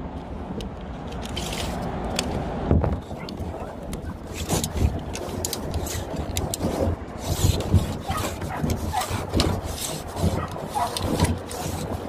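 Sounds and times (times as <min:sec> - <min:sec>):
measuring tape scraping and clicking: 0:00.6 - 0:02.4, 0:03.0 - 0:12.0.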